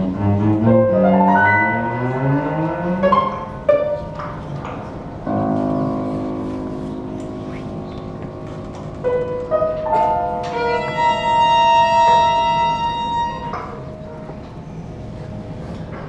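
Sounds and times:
clarinet: 0:00.0 - 0:04.1, 0:09.9 - 0:14.4
cello: 0:00.0 - 0:16.0
piano: 0:00.0 - 0:16.0
violin: 0:10.4 - 0:14.0.

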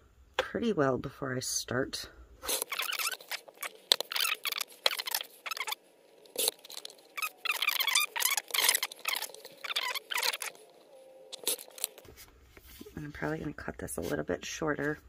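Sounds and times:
vinyl sheet rustling and scraping: 0:02.4 - 0:14.2.

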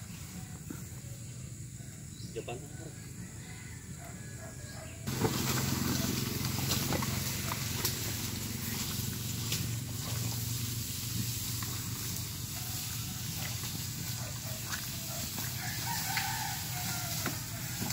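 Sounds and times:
constant low hum: 0:00.0 - 0:17.9
sled scraping over wet grass: 0:05.1 - 0:17.9.

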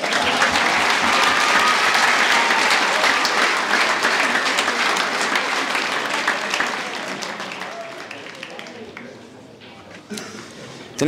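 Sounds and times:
crowd applauding: 0:00.0 - 0:09.2.

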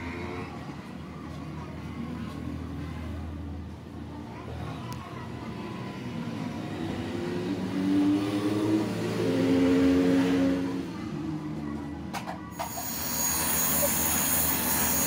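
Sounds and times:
vehicle engine revving: 0:06.6 - 0:10.9.

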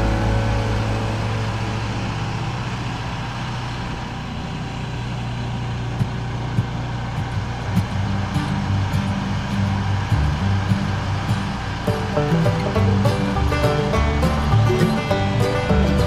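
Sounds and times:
sawmill engine running: 0:00.0 - 0:16.0.

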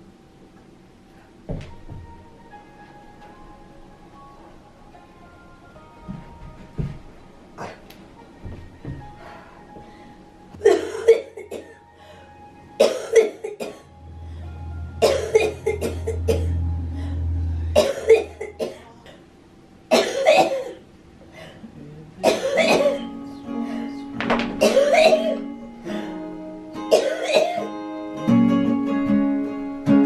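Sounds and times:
woman coughing: 0:10.6 - 0:11.8, 0:12.8 - 0:13.8, 0:15.0 - 0:16.5, 0:17.8 - 0:19.2, 0:19.9 - 0:20.8, 0:22.2 - 0:23.1, 0:24.6 - 0:25.4, 0:26.9 - 0:27.7
soft acoustic guitar: 0:25.1 - 0:30.0.

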